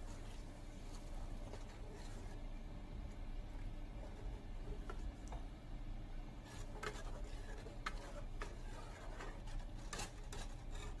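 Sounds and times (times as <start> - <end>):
low steady hum: 0.0 - 11.0
spatula scraping metal pot: 6.4 - 11.0.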